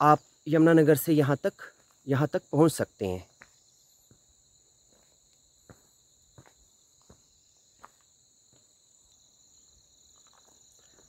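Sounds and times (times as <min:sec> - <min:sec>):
crickets chirping: 0:00.0 - 0:11.0
footsteps on stony track: 0:03.3 - 0:08.9, 0:10.0 - 0:11.0.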